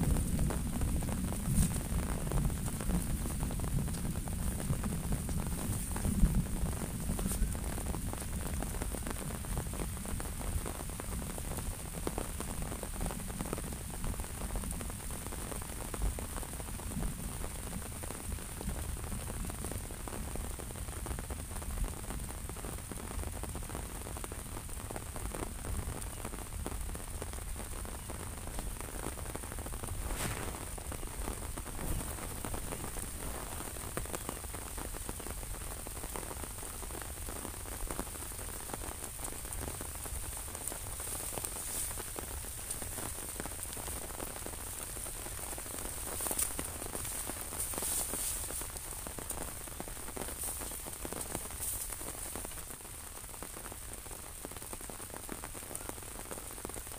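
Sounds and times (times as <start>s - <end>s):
rain pattering on umbrella: 0.0s - 56.9s.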